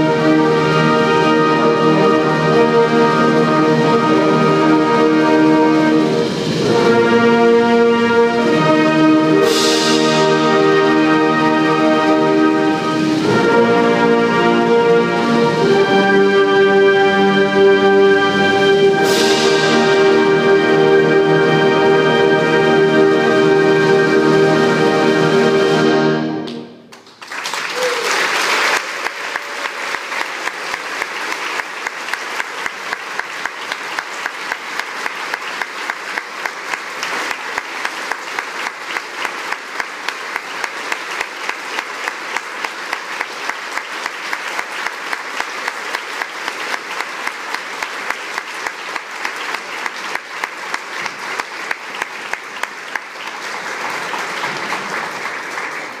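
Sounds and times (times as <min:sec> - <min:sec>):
band music: 0:00.0 - 0:26.8
steady clapping beat: 0:26.4 - 0:56.0
audience applause: 0:26.5 - 0:56.0
audience cheering: 0:27.3 - 0:35.7.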